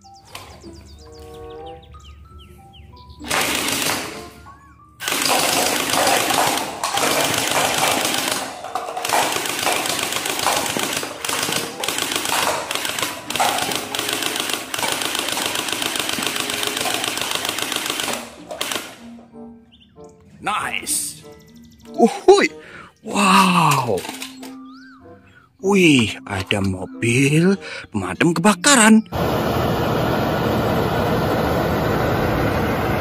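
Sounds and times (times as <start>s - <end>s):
toy rifle firing full auto: 3.2s - 4.4s, 5.0s - 19.1s.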